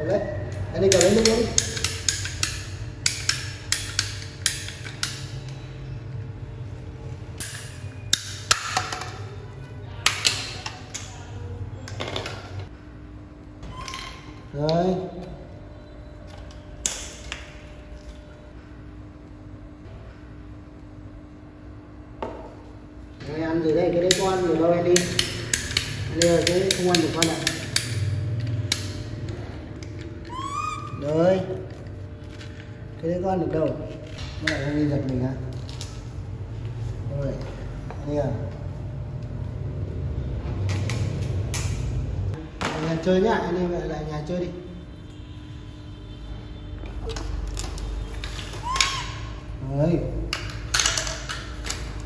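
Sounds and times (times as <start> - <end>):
ratcheting pipe cutter clicking: 0.9 - 5.3.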